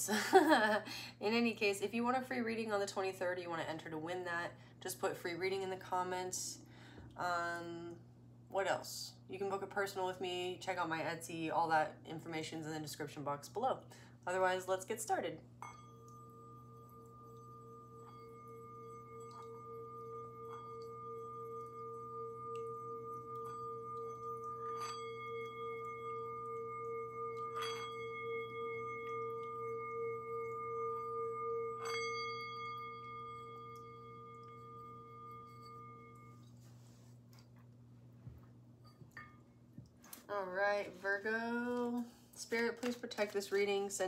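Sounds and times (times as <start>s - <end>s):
singing bowl ringing tone: 14.3s - 37.4s, 38.2s - 39.6s.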